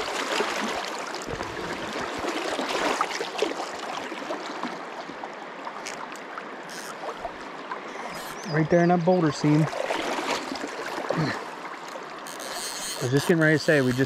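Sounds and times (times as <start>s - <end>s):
river rushing and babbling: 0.0s - 14.0s
small water splashes: 0.0s - 14.0s.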